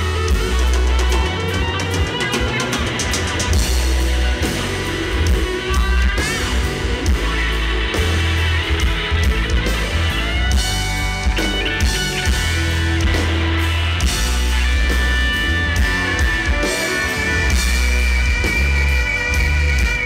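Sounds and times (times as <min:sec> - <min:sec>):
live rock band playing: 0:00.0 - 0:20.0.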